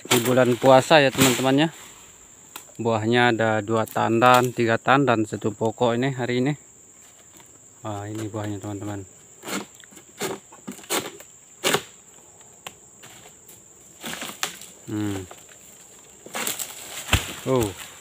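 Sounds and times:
sickle cutting palm fronds: 0:00.0 - 0:02.7, 0:09.4 - 0:12.0, 0:14.0 - 0:18.0
insect drone: 0:00.0 - 0:18.0
sickle scraping cuts: 0:09.4 - 0:12.0.

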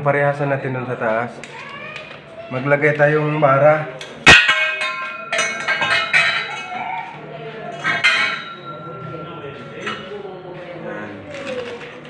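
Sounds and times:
metal tubing clinking: 0:04.0 - 0:07.1, 0:07.7 - 0:09.2.

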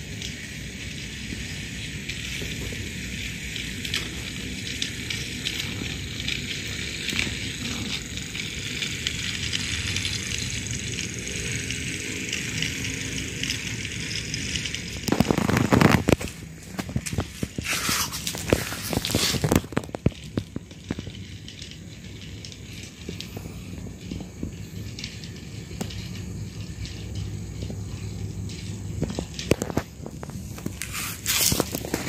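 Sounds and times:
toy train motor whirring: 0:00.0 - 0:32.0
wheels clicking on track: 0:00.0 - 0:32.0
scraping and rustling: 0:14.6 - 0:21.0, 0:29.0 - 0:32.0.

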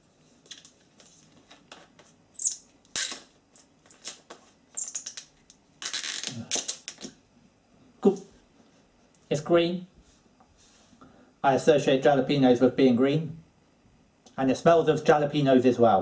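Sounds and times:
cap squeaking on thread: 0:02.3 - 0:06.5.

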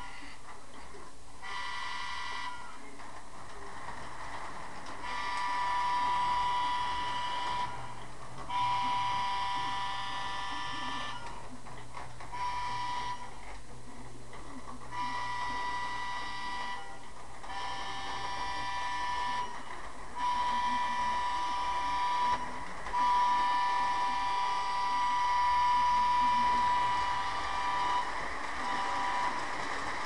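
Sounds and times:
steady low hum: 0:00.0 - 0:30.0
model train whistle blasts: 0:01.4 - 0:02.8, 0:05.0 - 0:07.9, 0:08.5 - 0:11.3, 0:12.3 - 0:13.4, 0:14.9 - 0:29.4.

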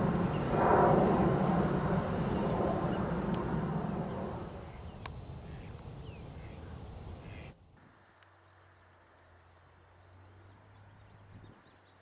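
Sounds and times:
low hum: 0:00.0 - 0:07.2
outdoor rumbling noise: 0:00.0 - 0:09.4
faint bird chirp: 0:04.6 - 0:12.0.

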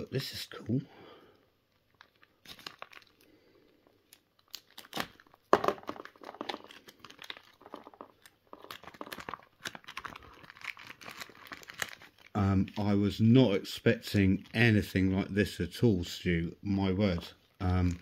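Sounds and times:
plastic packaging crinkling: 0:01.6 - 0:13.4, 0:17.0 - 0:18.0.

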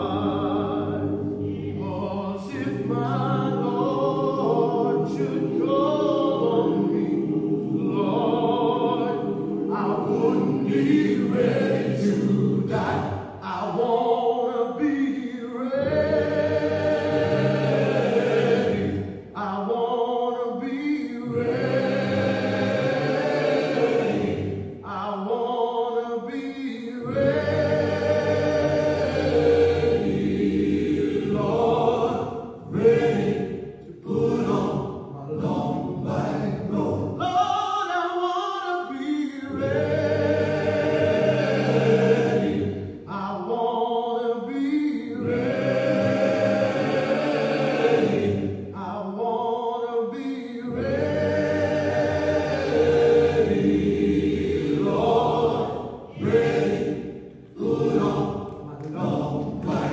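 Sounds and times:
choir singing gospel: 0:00.0 - 0:59.9.

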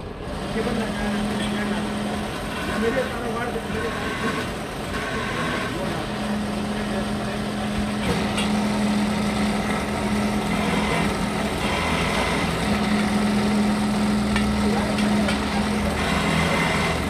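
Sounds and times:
pillar drill motor hum: 0:00.0 - 0:17.0.

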